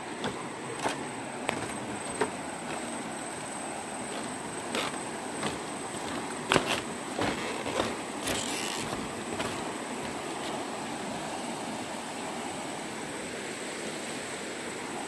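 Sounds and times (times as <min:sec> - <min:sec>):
footsteps on bamboo bridge: 0:00.0 - 0:10.8
river rushing: 0:00.0 - 0:15.0.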